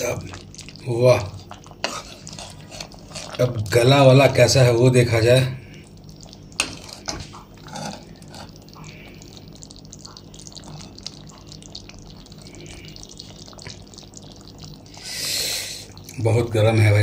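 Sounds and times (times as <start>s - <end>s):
gravy bubbles popping: 0.0s - 2.3s, 2.9s - 15.1s
ladle moving through gravy: 0.0s - 17.0s.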